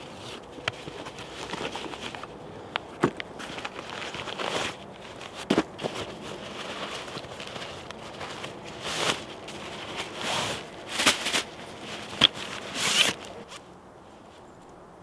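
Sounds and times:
zip being pulled: 12.2 - 13.4.

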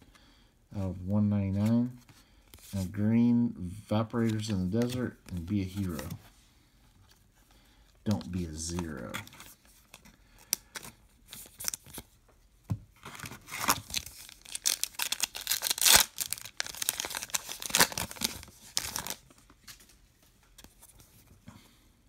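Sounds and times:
wrapper tearing and crinkling: 13.1 - 19.3.

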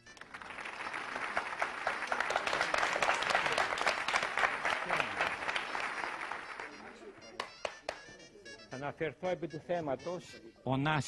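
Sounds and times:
studio audience applauding: 0.0 - 8.1.

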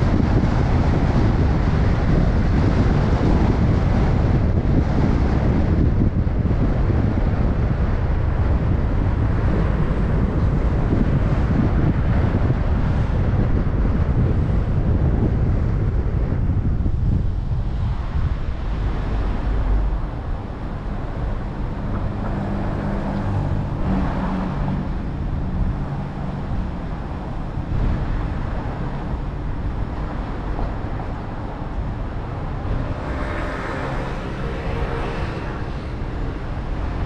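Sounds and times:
low engine hum: 0.0 - 37.0
wind and road rumble: 0.0 - 37.0
high-pitched droning: 30.7 - 37.0.

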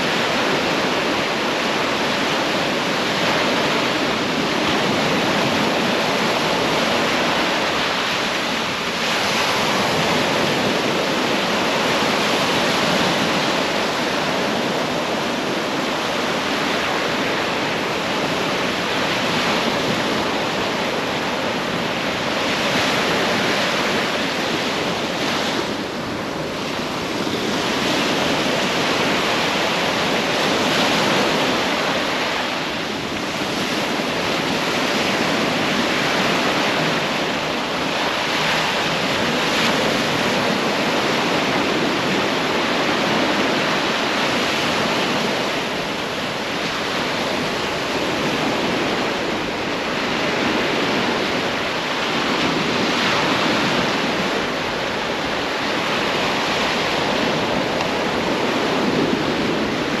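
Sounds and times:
sea surf washing onto beach: 0.0 - 60.0.

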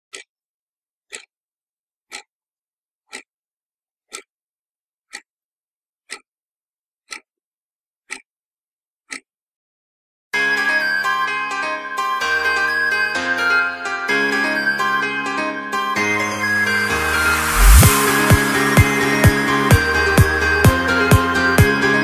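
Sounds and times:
clock ticking: 0.1 - 0.3, 1.1 - 1.3, 2.1 - 2.3, 3.1 - 3.3, 4.1 - 4.3, 5.1 - 5.3, 6.1 - 6.3, 7.1 - 7.3, 8.1 - 8.3, 9.1 - 9.3, 16.8 - 21.7
music: 10.4 - 22.0.

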